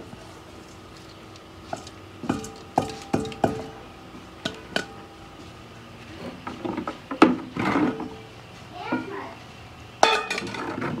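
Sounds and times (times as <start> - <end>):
metal bowl clinking against pot: 1.7 - 3.8, 10.0 - 10.7
metal clatter: 10.0 - 11.0.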